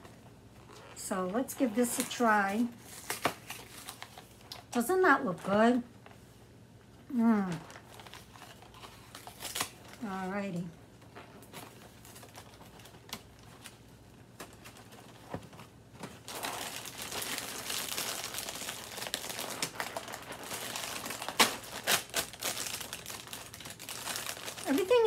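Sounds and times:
plastic bag crinkling: 0:00.0 - 0:04.7, 0:07.1 - 0:25.0
plastic bag tearing snaps: 0:07.5 - 0:10.0, 0:16.2 - 0:25.0.

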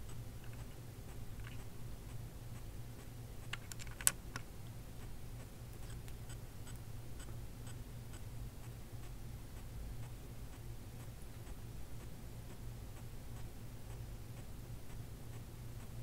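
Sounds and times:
soft regular ticking: 0:00.0 - 0:16.0
sharp clicks: 0:03.4 - 0:04.5.

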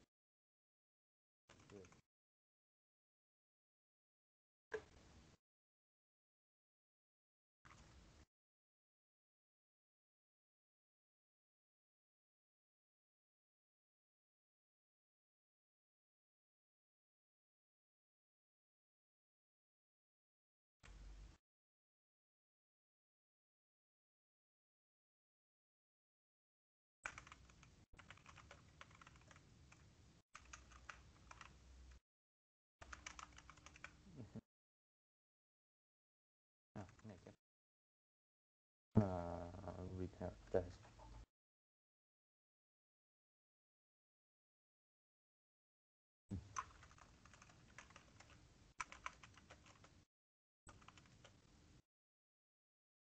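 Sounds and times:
faint keyboard typing: 0:01.5 - 0:02.0, 0:07.7 - 0:08.1, 0:27.0 - 0:32.0, 0:32.8 - 0:34.2, 0:36.8 - 0:37.4, 0:46.3 - 0:50.0, 0:50.7 - 0:51.5.

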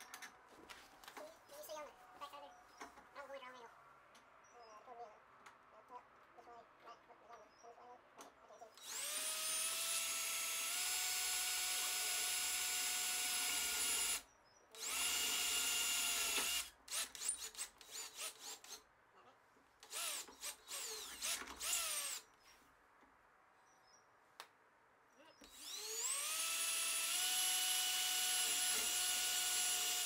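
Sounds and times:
cordless drill whining: 0:08.8 - 0:14.2, 0:14.8 - 0:18.8, 0:19.8 - 0:22.3, 0:25.4 - 0:30.0.

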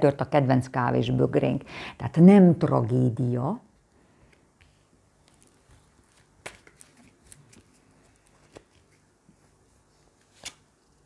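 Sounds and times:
cards tapping and rustling: 0:05.4 - 0:09.0.

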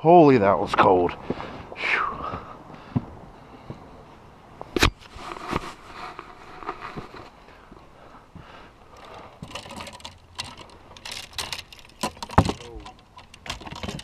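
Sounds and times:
fishing rods clattering together: 0:09.0 - 0:14.0.

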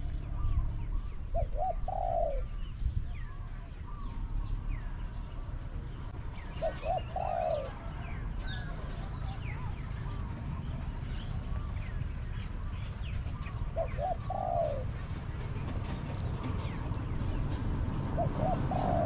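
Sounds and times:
small birds chirping: 0:00.0 - 0:19.0
dove cooing: 0:01.2 - 0:02.6, 0:06.4 - 0:12.0, 0:13.4 - 0:15.2, 0:18.1 - 0:19.0.

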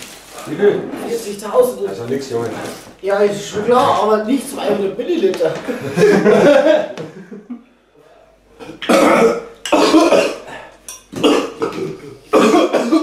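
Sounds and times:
man coughing hard: 0:08.8 - 0:13.0.

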